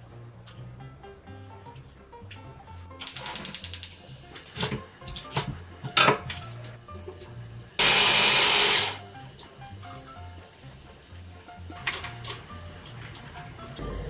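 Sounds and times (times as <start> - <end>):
electric chopper running: 7.8 - 9.0.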